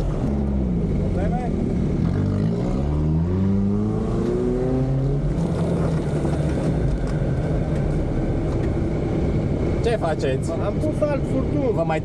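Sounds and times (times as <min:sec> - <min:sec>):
car engine accelerating: 0:00.0 - 0:08.8.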